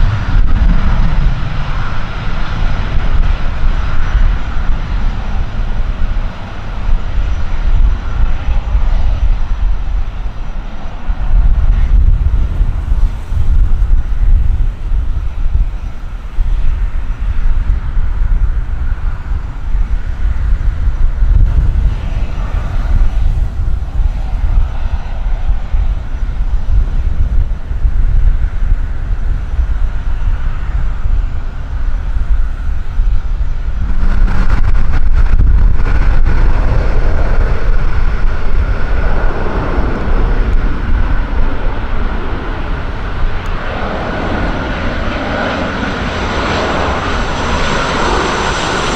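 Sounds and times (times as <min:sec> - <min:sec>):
jet engine whine: 0:00.0 - 0:48.9
jet engines on approach: 0:00.0 - 0:48.9
wind rumble on microphone: 0:00.0 - 0:48.9.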